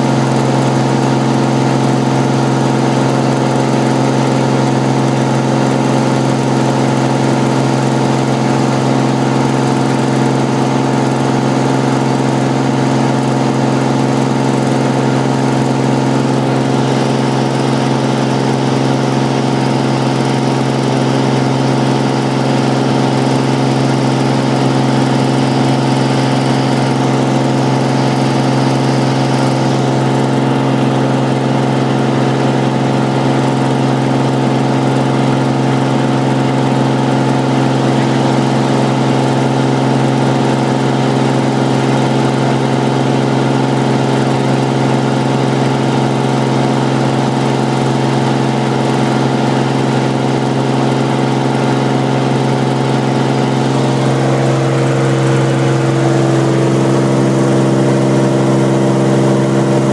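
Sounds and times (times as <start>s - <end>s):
aircraft engine and propeller drone: 0.0s - 59.9s.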